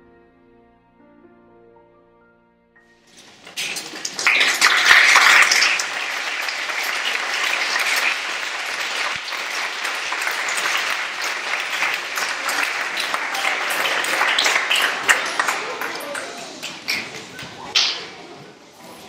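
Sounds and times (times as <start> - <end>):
audience applauding: 3.1 - 18.2.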